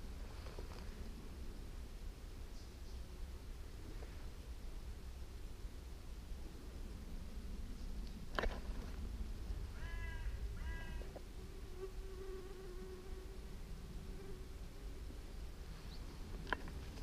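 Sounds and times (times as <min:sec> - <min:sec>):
fly buzzing: 0:10.0 - 0:15.0.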